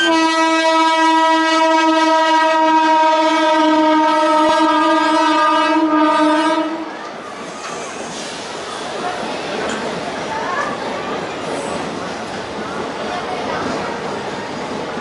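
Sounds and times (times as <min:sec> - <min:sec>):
locomotive horn blast: 0:00.0 - 0:06.9
train running noise: 0:00.0 - 0:15.0.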